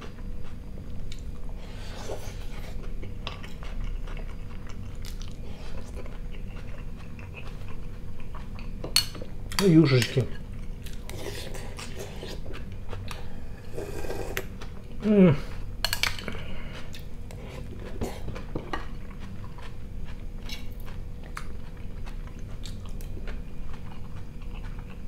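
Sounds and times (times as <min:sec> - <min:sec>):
chewing sounds: 0:00.0 - 0:25.0
slurping broth: 0:13.6 - 0:14.5
person humming mmm: 0:13.6 - 0:15.6.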